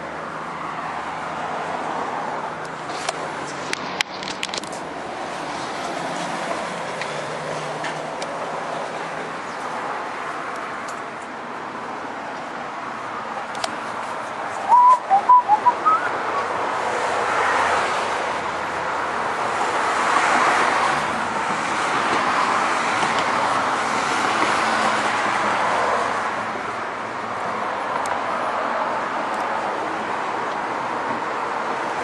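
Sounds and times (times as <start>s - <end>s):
road traffic passing: 0.0s - 32.0s
bird chirps: 14.7s - 16.1s.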